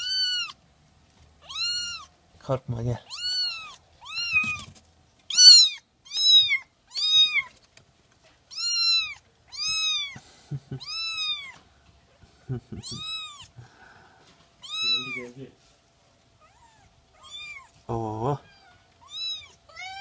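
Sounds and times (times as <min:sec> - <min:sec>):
kitten meowing: 0:00.0 - 0:00.6, 0:01.4 - 0:02.2, 0:03.0 - 0:04.7, 0:05.3 - 0:07.5, 0:08.5 - 0:10.2, 0:10.8 - 0:11.6, 0:12.8 - 0:13.5, 0:14.6 - 0:15.3, 0:16.4 - 0:17.7, 0:18.4 - 0:20.0.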